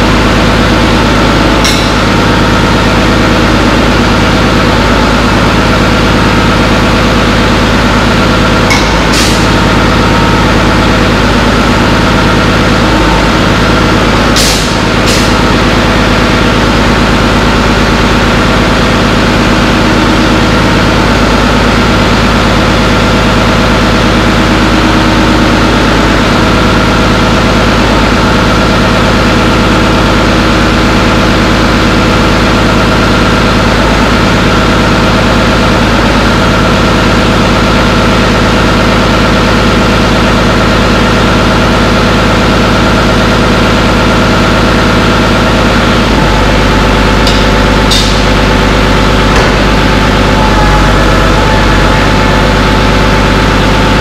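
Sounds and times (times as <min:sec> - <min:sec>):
steady whine: 0:00.0 - 0:27.4, 0:41.4 - 0:54.0
dozer diesel engine running: 0:00.0 - 0:54.0.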